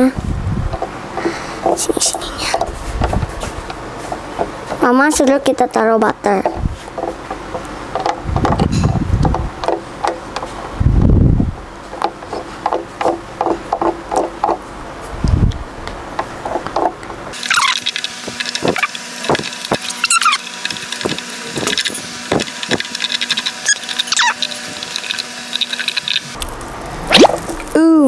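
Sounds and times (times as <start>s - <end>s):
brush scraping plates squeaks: 17.4s - 26.4s.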